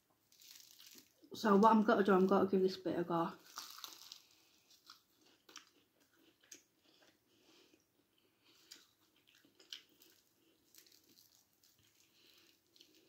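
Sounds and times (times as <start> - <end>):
faint chewing of pastry: 0.2 - 1.3, 3.4 - 13.0
soft pastry crackles: 0.2 - 1.3, 3.4 - 7.1, 8.4 - 13.0.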